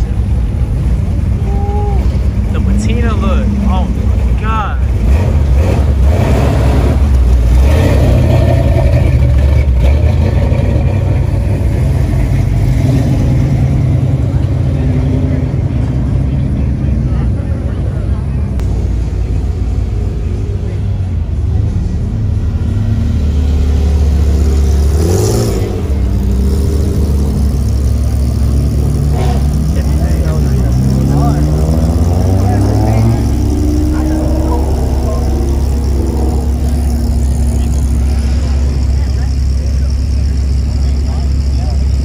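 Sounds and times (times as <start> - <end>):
truck exhaust low rumble: 0.0 - 42.0
car engine passing by: 21.5 - 41.8.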